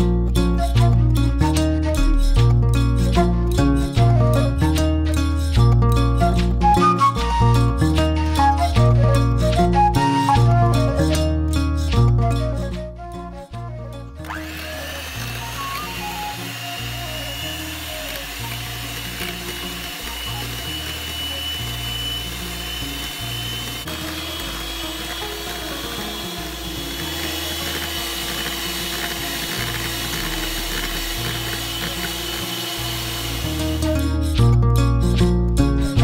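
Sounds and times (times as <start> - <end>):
electric hand mixer whipping cream: 14.2 - 34.0.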